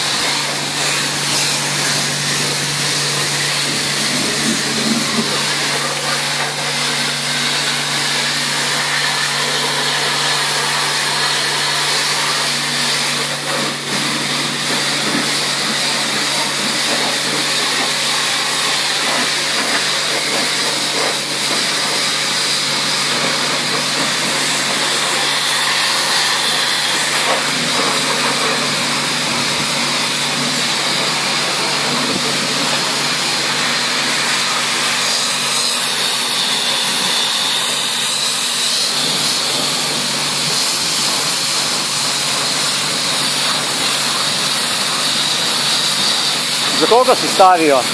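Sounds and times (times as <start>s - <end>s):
pressure washer spraying water: 0.0s - 47.9s.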